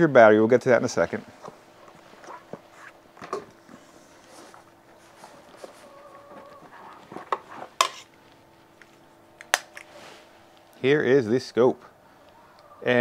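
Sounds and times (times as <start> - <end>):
soft rustling: 9.8 - 10.7.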